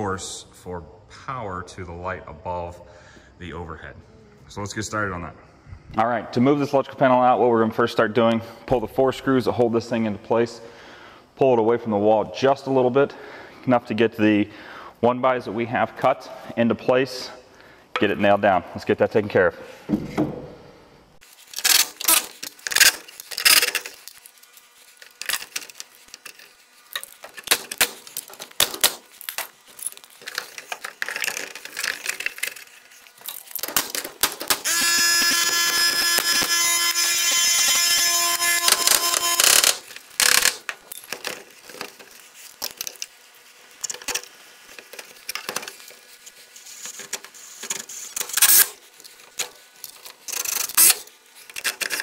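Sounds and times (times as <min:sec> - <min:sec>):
power tool motor running: 0:34.6 - 0:40.6.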